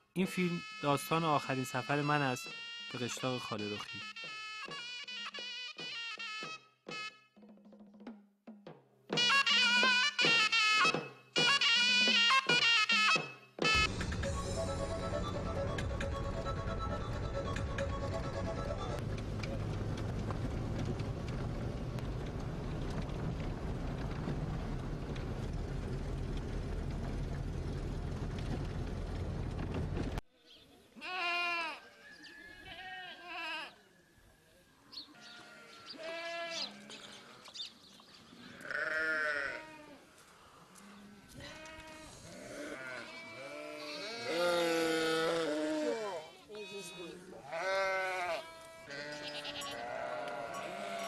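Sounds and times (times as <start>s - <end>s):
sheep bleating: 0.4s - 3.7s, 31.0s - 32.0s, 32.6s - 33.8s, 35.2s - 37.4s, 38.4s - 40.0s, 41.0s - 51.0s
vehicle rumble from inside: 13.9s - 30.2s.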